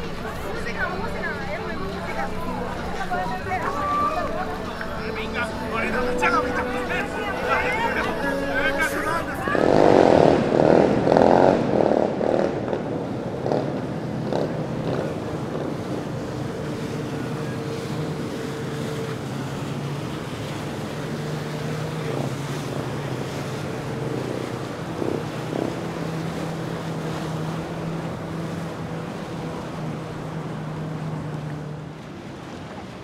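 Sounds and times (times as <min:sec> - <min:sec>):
personal watercraft engine running: 0:00.0 - 0:33.0
wind on microphone: 0:04.6 - 0:33.0.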